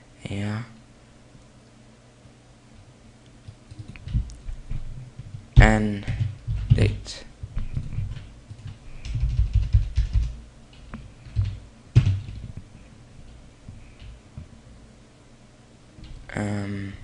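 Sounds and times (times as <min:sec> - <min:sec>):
typing on computer keyboard: 0:03.5 - 0:05.4, 0:06.0 - 0:06.9, 0:07.7 - 0:12.6.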